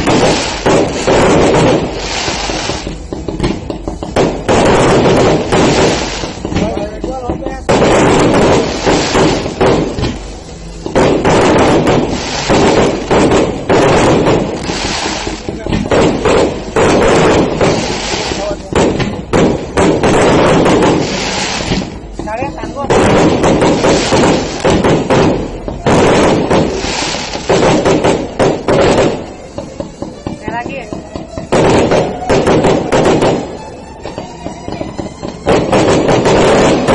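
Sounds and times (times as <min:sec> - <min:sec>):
fireworks booming and cracking: 0:00.0 - 0:36.9.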